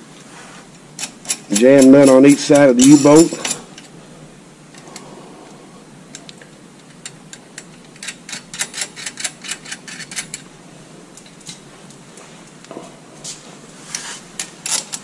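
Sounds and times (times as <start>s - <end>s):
metal washers and nuts clicking: 1.0s - 4.0s, 6.8s - 10.4s, 14.4s - 15.0s.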